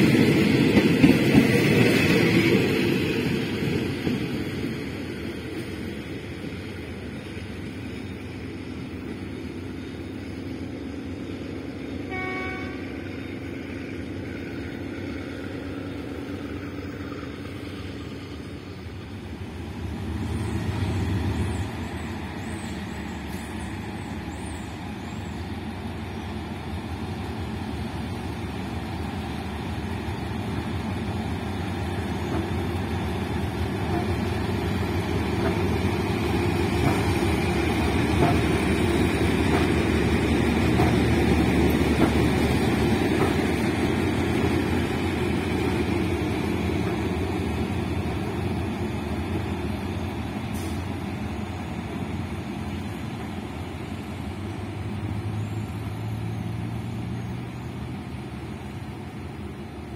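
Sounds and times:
diesel locomotive engine running: 0.0 - 59.9
locomotive horn toot: 12.0 - 13.0.

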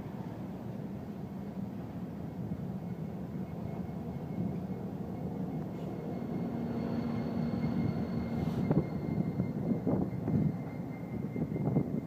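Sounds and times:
diesel locomotive engine hum: 0.0 - 12.0
train cars rolling past: 0.0 - 12.0
wind buffeting microphone: 7.8 - 12.0.

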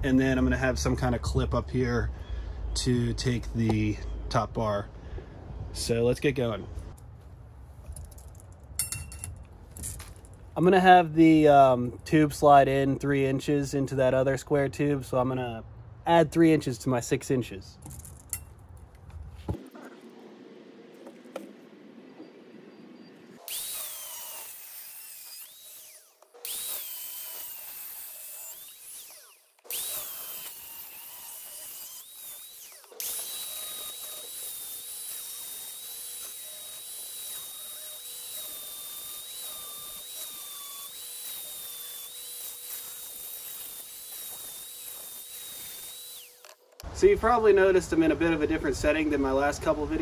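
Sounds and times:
angle grinder cutting steel: 23.2 - 46.8.

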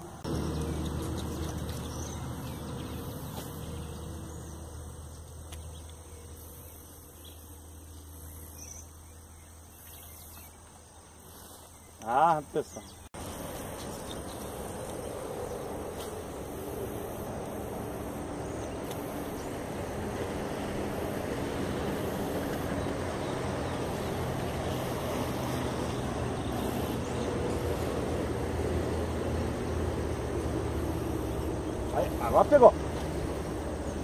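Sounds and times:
engine-like hum: 0.0 - 10.9, 12.0 - 34.0
noisy rush: 13.2 - 34.0.

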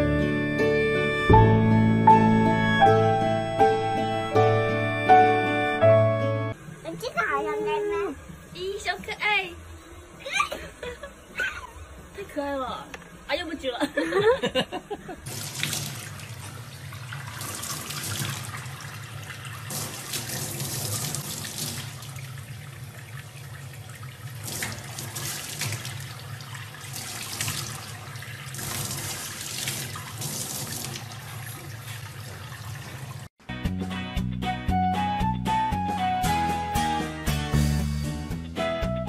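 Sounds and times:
tap water running into sink: 15.3 - 33.3.

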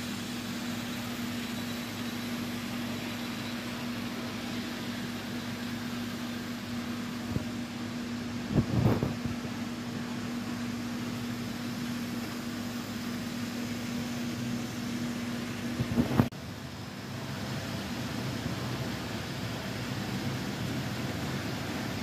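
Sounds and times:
model train motor hum: 0.0 - 7.3.

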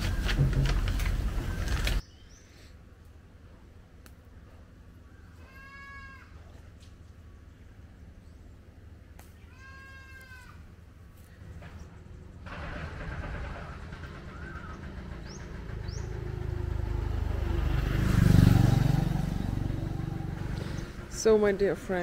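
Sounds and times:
motor vehicle passing: 11.5 - 22.0.

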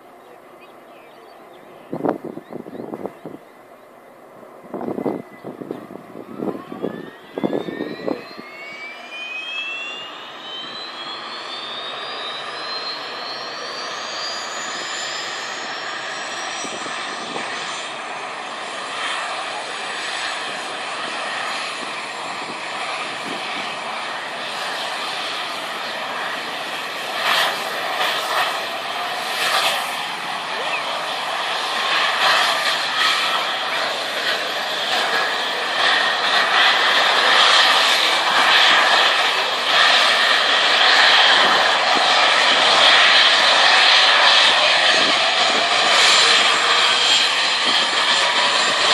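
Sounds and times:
turbine whine climbing in pitch: 4.3 - 48.9
turbine rush: 4.6 - 48.9.

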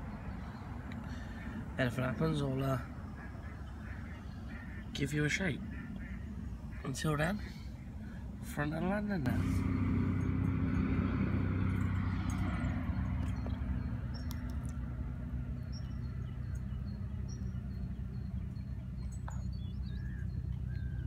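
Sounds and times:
steady low hum: 0.0 - 21.0
faint bird chirps: 15.5 - 21.0.

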